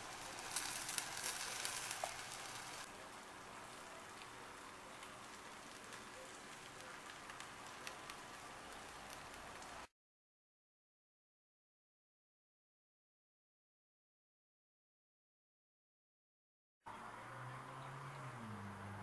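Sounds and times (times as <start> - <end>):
fried rice sizzling in pan: 0.0 - 9.9.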